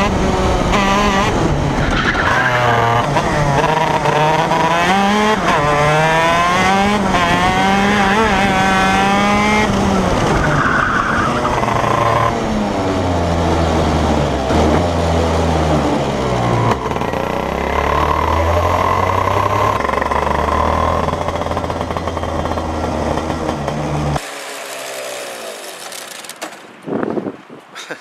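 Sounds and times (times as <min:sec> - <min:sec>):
kart engine revving: 0:00.0 - 0:26.6.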